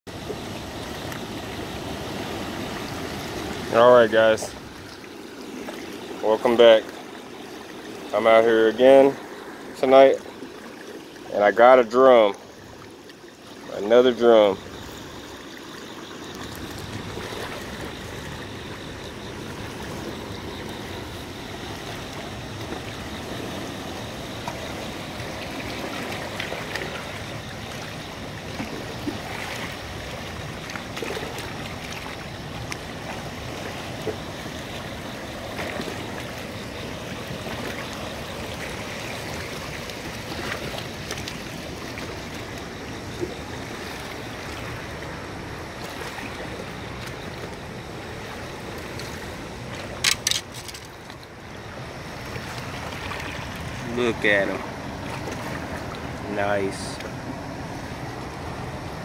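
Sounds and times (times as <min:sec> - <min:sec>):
water rushing at rocky bank: 0:00.1 - 0:59.0
splashes and knocks: 0:16.3 - 0:18.4, 0:24.4 - 0:51.4, 0:54.6 - 0:56.2.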